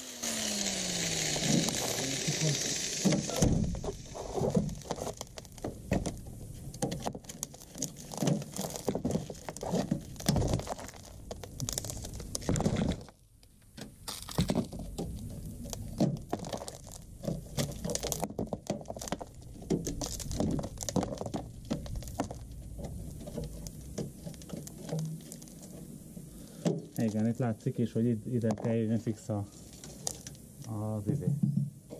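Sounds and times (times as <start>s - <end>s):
rusted sheet metal breaking off: 3.0s - 13.2s.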